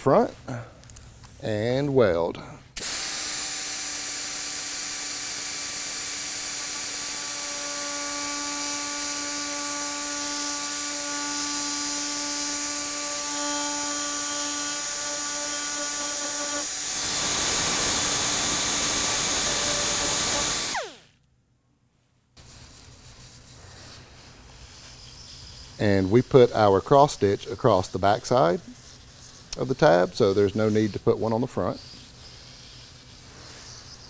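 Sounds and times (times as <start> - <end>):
rotary tool whining: 2.8 - 21.1.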